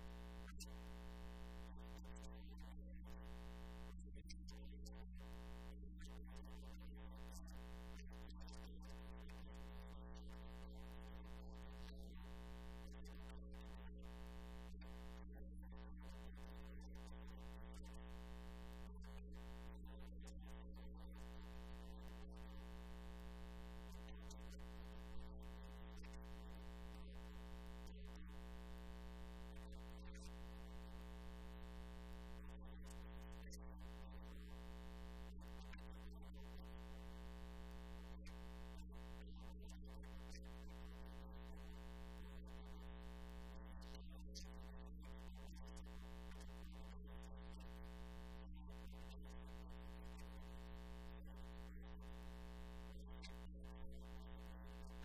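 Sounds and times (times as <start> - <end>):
faint electronic hum: 0.0 - 55.0.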